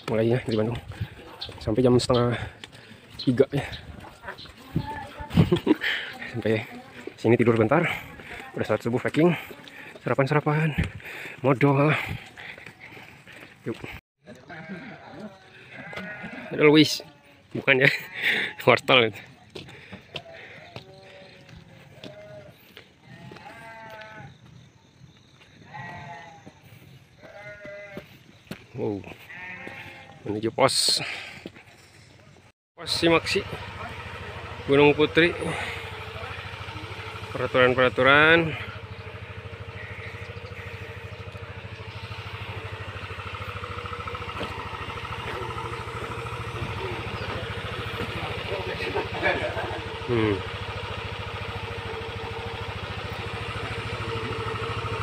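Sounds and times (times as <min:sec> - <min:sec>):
motorcycle engine running: 0:00.0 - 0:14.0, 0:14.6 - 0:24.7, 0:25.8 - 0:30.0, 0:30.7 - 0:55.0
livestock bleating: 0:14.3 - 0:17.2, 0:17.8 - 0:18.8, 0:20.4 - 0:24.3, 0:25.6 - 0:26.6, 0:27.2 - 0:28.2, 0:29.1 - 0:30.4, 0:35.4 - 0:52.2.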